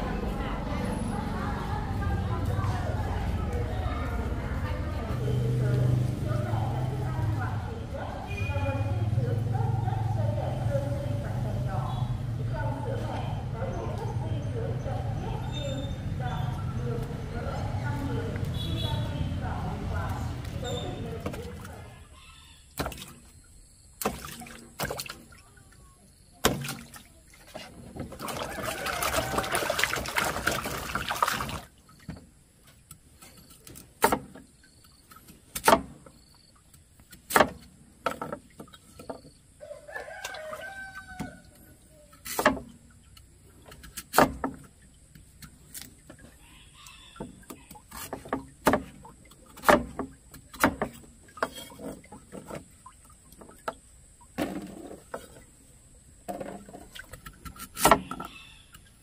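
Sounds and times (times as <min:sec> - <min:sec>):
rooster crowing: 0:22.1 - 0:22.7, 0:28.2 - 0:30.0, 0:39.6 - 0:41.7, 0:46.4 - 0:47.8.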